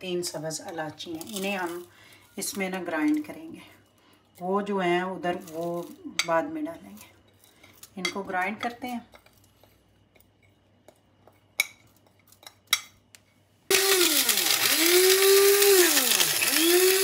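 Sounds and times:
electric spice grinder grinding: 13.7 - 17.0.

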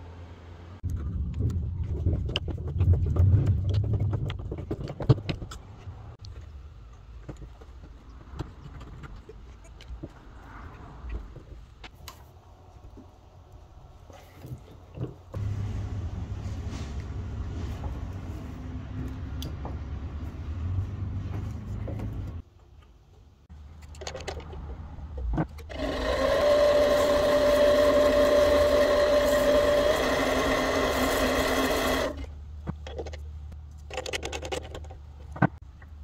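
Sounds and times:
low hum: 15.4 - 22.4
benchtop lathe whining: 25.7 - 32.2.

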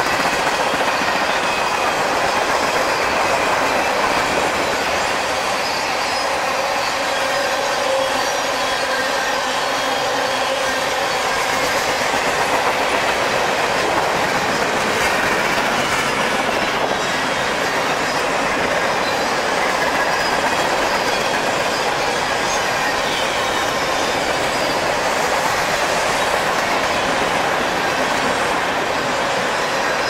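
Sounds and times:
freight train wheels rolling: 0.0 - 30.0.

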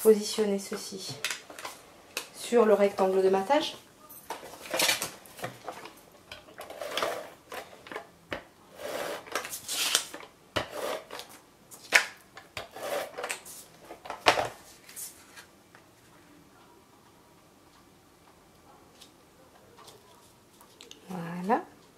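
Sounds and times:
tape dispenser running: 6.6 - 7.7, 8.8 - 11.4.

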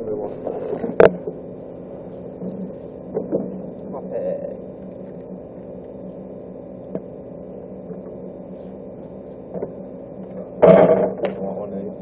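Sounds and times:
electrical machine hum: 0.0 - 12.0
sudden loud noise: 10.6 - 11.4.

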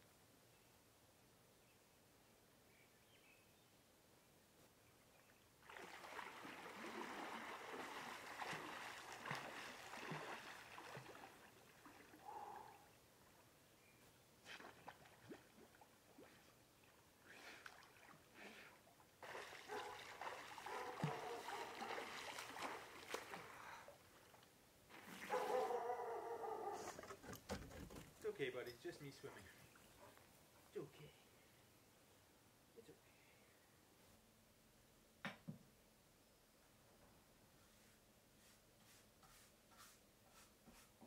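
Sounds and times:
swimming water splashing: 5.6 - 13.0, 14.4 - 26.0.

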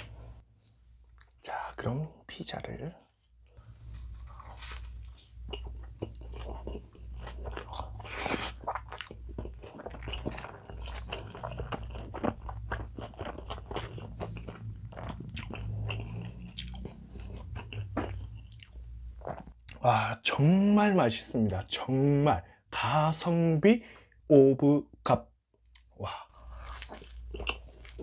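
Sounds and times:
man chewing food: 3.2 - 19.8, 25.7 - 28.0.

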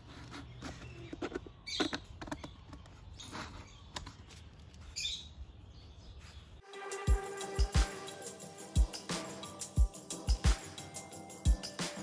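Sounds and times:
cardboard scratching on plastic: 0.0 - 2.1, 2.8 - 5.1.

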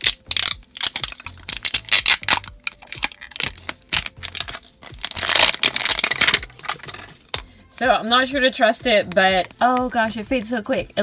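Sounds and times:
plastic wrapper crackling and tearing: 0.0 - 7.4.

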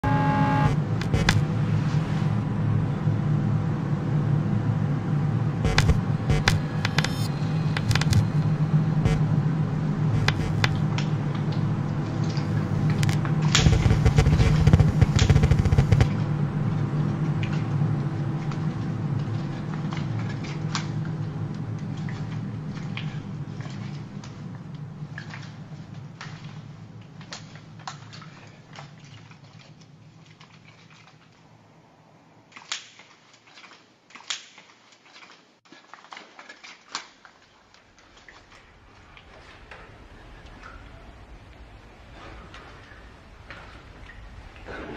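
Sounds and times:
crackles and clicks: 0.0 - 1.5, 5.6 - 9.3, 10.1 - 16.3
low ambient drone: 0.0 - 30.0, 38.4 - 44.9.

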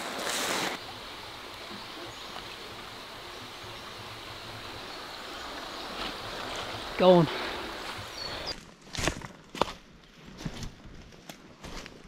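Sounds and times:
creek water running: 0.0 - 8.6.

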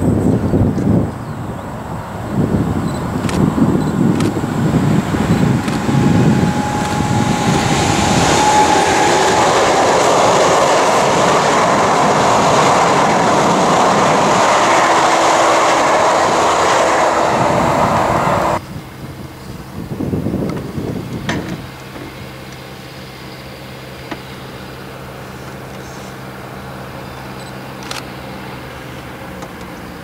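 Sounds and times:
train wheels rushing on rail: 0.0 - 30.0
track clickety-clack: 2.9 - 18.6, 20.4 - 22.6.

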